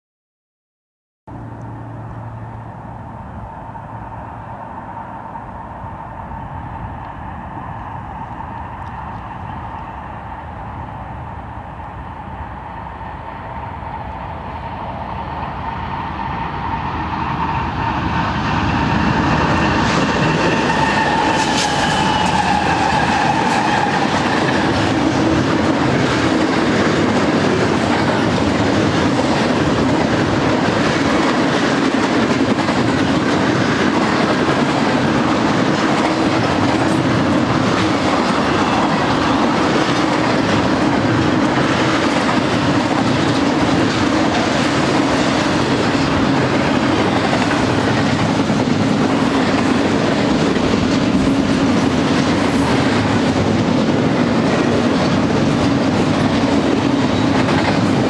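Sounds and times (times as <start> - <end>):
freight train rumble: 1.3 - 58.0
train whine dropping in pitch: 1.3 - 58.0
train wheels rolling on rails: 2.0 - 58.0.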